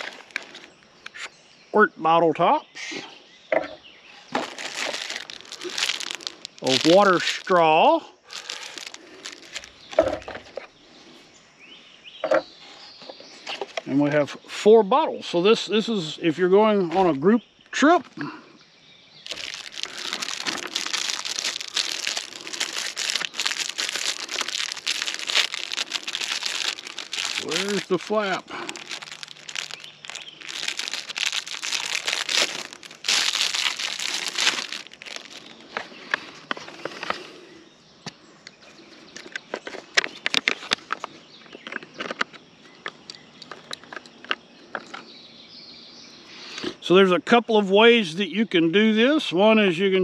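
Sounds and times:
packaging rustling: 0:00.0 - 0:00.8, 0:04.3 - 0:10.4, 0:19.2 - 0:37.2
plastic bag crinkling: 0:00.0 - 0:00.8, 0:04.3 - 0:10.4, 0:19.2 - 0:36.3.

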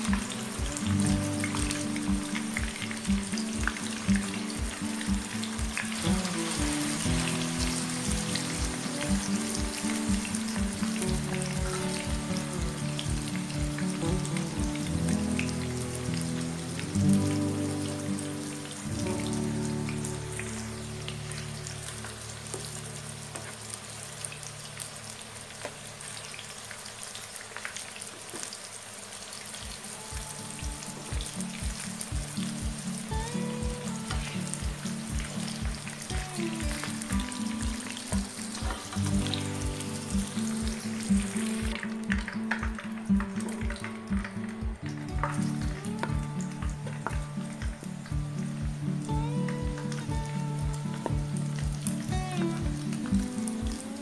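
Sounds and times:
background music with a beat: 0:00.0 - 0:22.8, 0:29.6 - 0:54.0
tofu deep-frying in hot oil: 0:00.0 - 0:44.0.

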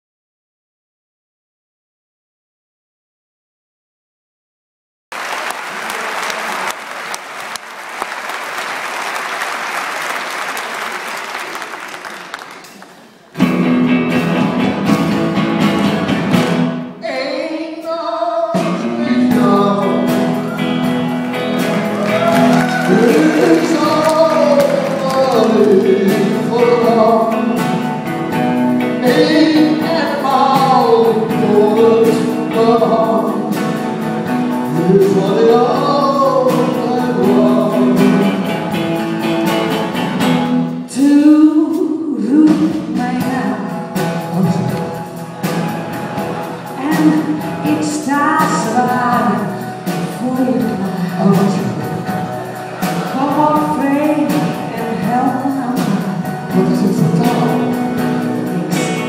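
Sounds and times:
audience applauding: 0:05.1 - 0:13.4, 0:20.4 - 0:26.4
live band with double bass and guitar: 0:12.6 - 0:17.0, 0:18.5 - 0:59.0
woman and man singing duet: 0:17.0 - 0:20.7, 0:22.0 - 0:27.5, 0:29.0 - 0:33.6, 0:34.7 - 0:38.4, 0:40.9 - 0:44.8, 0:46.8 - 0:52.0, 0:53.1 - 0:57.8.

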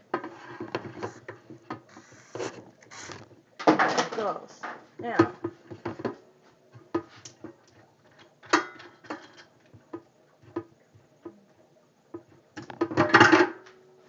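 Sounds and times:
clatter in metal sink: 0:03.6 - 0:05.9, 0:08.1 - 0:09.5.

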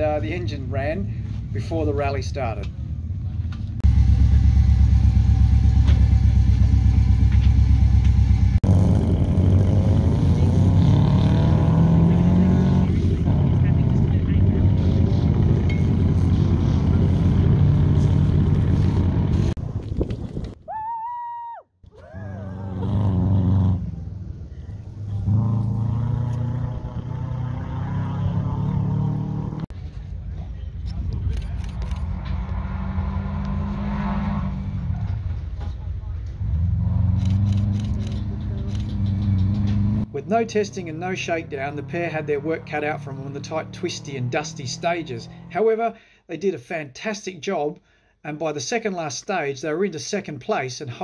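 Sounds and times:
rally car engine: 0:03.2 - 0:19.6, 0:22.1 - 0:45.6
rally car engine running hard: 0:03.8 - 0:15.9.

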